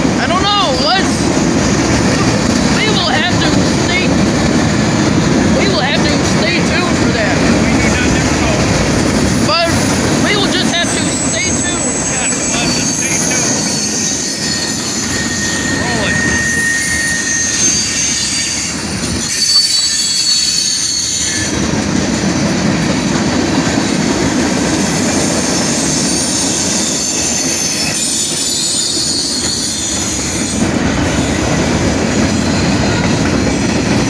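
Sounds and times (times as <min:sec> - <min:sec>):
train wheels rumbling on rails: 0:00.0 - 0:34.0
high-pitched wheel squeals: 0:10.3 - 0:21.5, 0:25.4 - 0:31.5.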